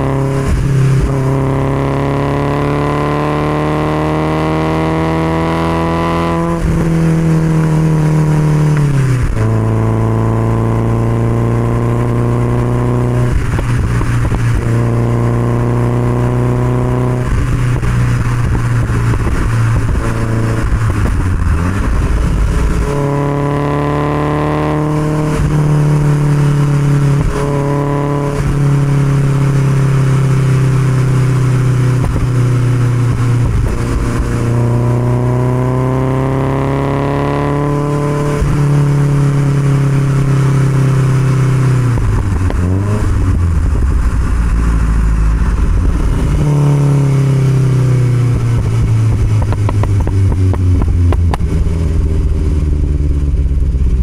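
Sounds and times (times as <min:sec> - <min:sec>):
car engine at road speed: 0:00.0 - 0:54.0
wind rushing past: 0:16.2 - 0:35.6.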